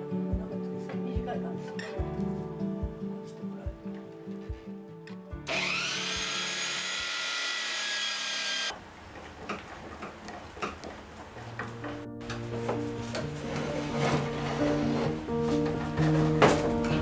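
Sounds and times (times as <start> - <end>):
background music with steady beat: 0.0 - 5.5
power drill spinning: 5.5 - 8.8.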